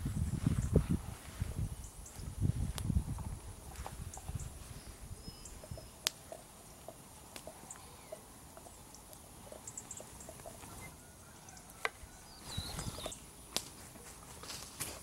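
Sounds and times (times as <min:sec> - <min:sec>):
faint bird chirps: 0:04.1 - 0:06.8, 0:07.5 - 0:13.3
campfire crackling and popping: 0:05.4 - 0:10.9, 0:12.7 - 0:15.0.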